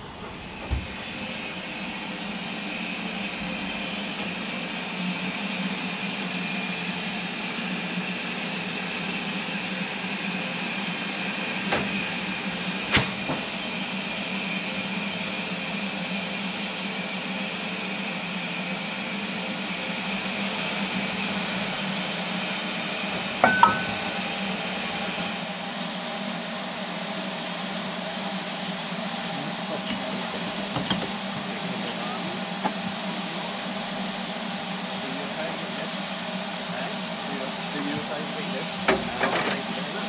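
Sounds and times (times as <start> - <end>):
steam locomotive hissing steam: 0.0 - 40.0
sharp knocks: 23.4 - 24.2.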